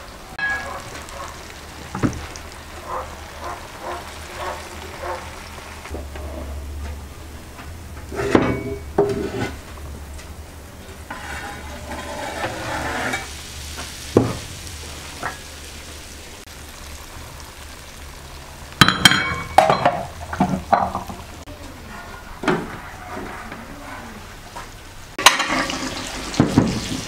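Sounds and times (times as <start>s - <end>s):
fish sizzling in frying pan: 0.4s - 6.0s, 10.8s - 21.5s, 24.6s - 27.0s.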